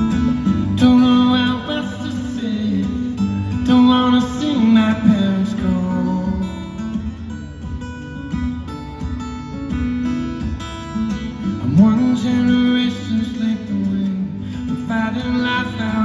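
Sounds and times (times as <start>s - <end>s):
man singing: 0.0s - 7.2s, 11.4s - 16.0s
acoustic guitar picked and strummed: 0.0s - 16.0s.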